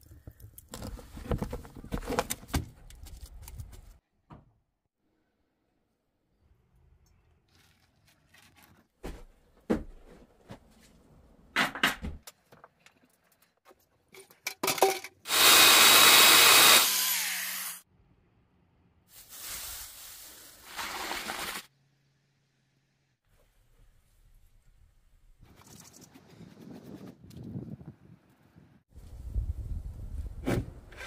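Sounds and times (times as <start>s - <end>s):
electric chainsaw cutting log: 15.3s - 17.8s.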